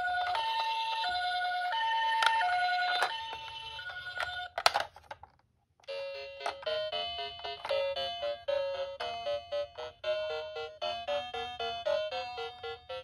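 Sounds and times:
toy two-tone siren: 0:00.0 - 0:04.5, 0:05.9 - 0:13.0.

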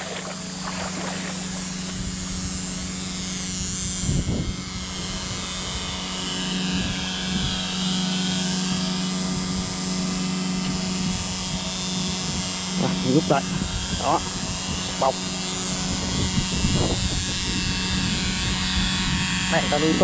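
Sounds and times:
churned water hiss: 0:00.0 - 0:03.4
aerator motor hum: 0:00.0 - 0:20.0.

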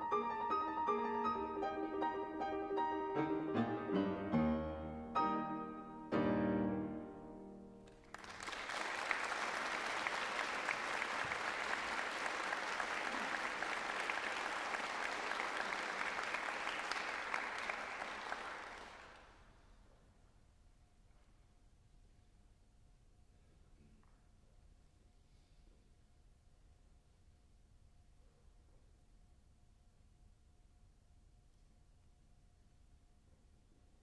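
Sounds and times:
grand piano chords: 0:00.0 - 0:08.1
audience applauding: 0:07.8 - 0:19.5.

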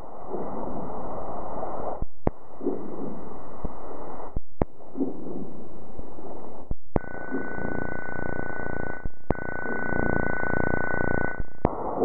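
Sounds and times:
thin steady high tone: 0:07.0 - 0:11.6.

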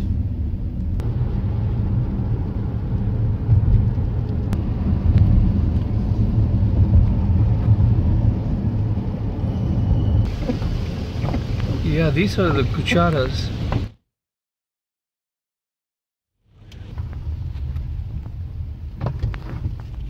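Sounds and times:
car engine and tyre noise: 0:00.0 - 0:14.0, 0:16.4 - 0:20.0.

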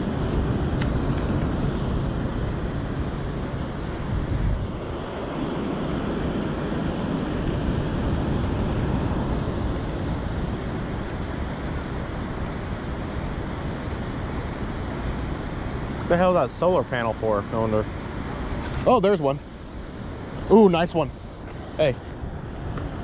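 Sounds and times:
wind buffeting microphone: 0:00.0 - 0:23.0
river water flowing: 0:08.6 - 0:23.0.

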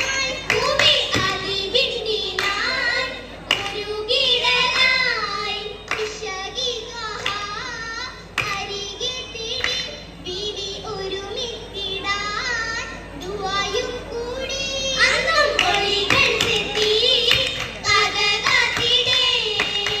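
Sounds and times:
sharp hand claps: 0:00.0 - 0:01.5, 0:02.3 - 0:02.8, 0:03.4 - 0:03.9, 0:05.8 - 0:06.3, 0:07.1 - 0:07.6, 0:08.3 - 0:08.7, 0:09.5 - 0:10.0, 0:15.5 - 0:20.0
girls singing in chorus: 0:00.0 - 0:10.0, 0:10.8 - 0:20.0.

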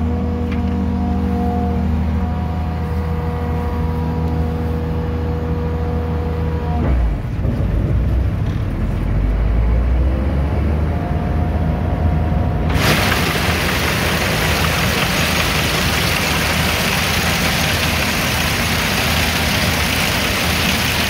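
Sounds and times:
engine idling: 0:12.7 - 0:21.0.

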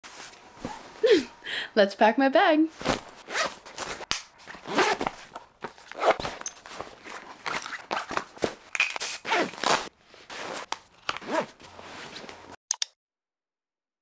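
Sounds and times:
backpack fabric rustling: 0:02.7 - 0:12.6.

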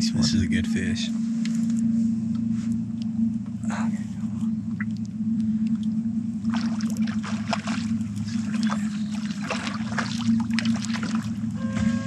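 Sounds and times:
outboard motor humming: 0:00.0 - 0:12.0
water splashing: 0:05.7 - 0:11.6.

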